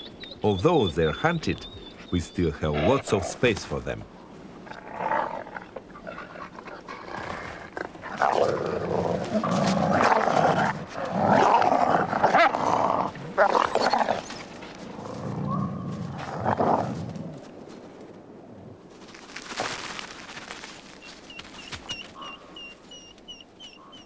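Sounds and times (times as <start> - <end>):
wolves growling and snarling: 4.6 - 17.5.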